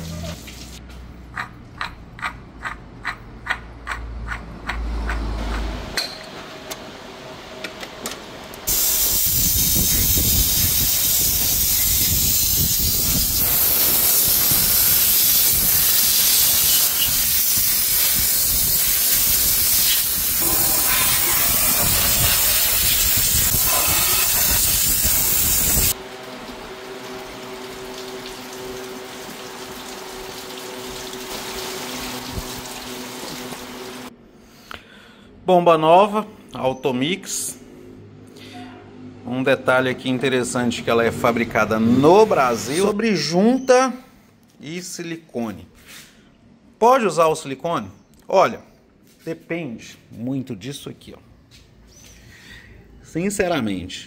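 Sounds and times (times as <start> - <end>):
pressure washer jet hissing: 8.7 - 26.0, 27.1 - 34.1.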